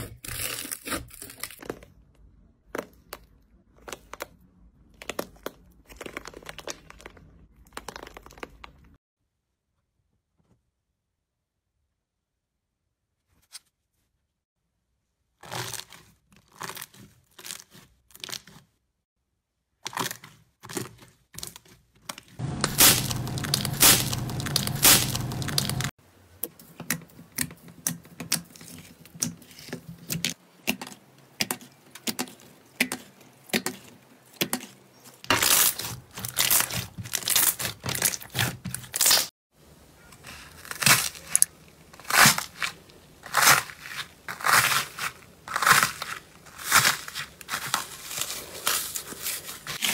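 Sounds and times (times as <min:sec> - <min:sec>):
crusty slime crackling and tearing: 0:00.0 - 0:02.0, 0:03.9 - 0:09.0, 0:15.4 - 0:18.7, 0:19.8 - 0:25.9, 0:34.5 - 0:39.3, 0:40.2 - 0:49.9.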